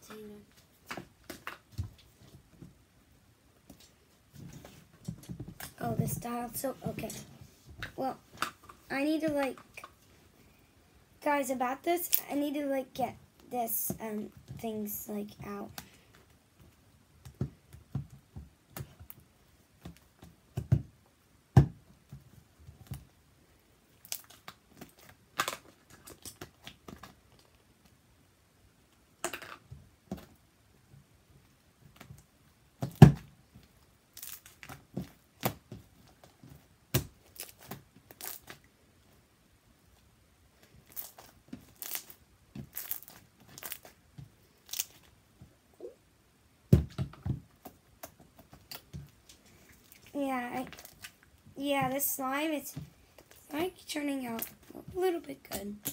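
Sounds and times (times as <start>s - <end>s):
slime crackling and popping: 23.9s - 27.6s, 34.1s - 36.3s, 36.9s - 38.7s, 40.6s - 45.2s, 47.6s - 51.4s.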